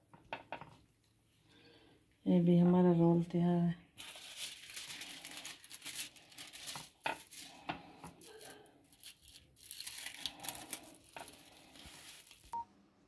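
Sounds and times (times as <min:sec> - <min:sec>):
paper wrapper crinkling: 0:04.0 - 0:12.6.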